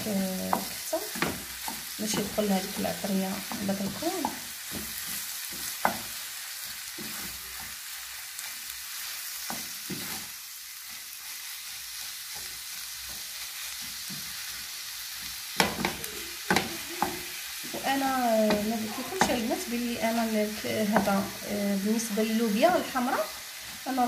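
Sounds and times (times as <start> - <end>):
meat sizzling in a pan: 0.0 - 24.0
wooden spoon scraping a pan: 0.0 - 24.0
spoon knocking on pan: 0.4 - 6.2, 15.6 - 21.4.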